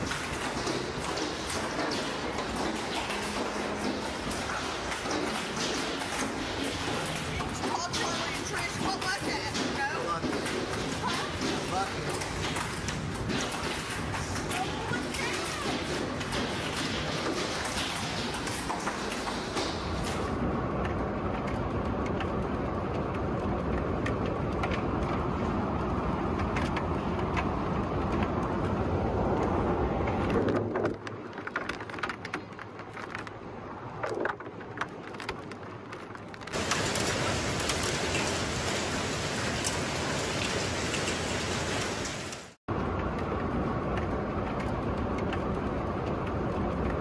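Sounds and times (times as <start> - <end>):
hail and rain pelting ground: 0.0 - 18.6, 35.0 - 42.6.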